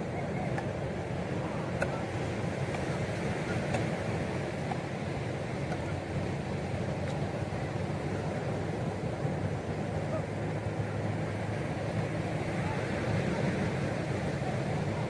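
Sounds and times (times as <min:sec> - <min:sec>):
ocean surf: 0:00.0 - 0:15.0.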